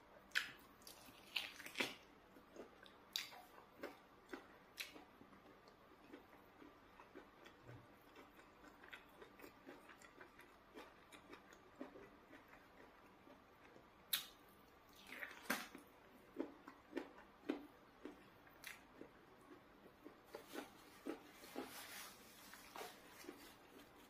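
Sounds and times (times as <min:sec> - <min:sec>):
lip smacks and mouth clicks: 0:03.1 - 0:05.1, 0:14.1 - 0:14.4.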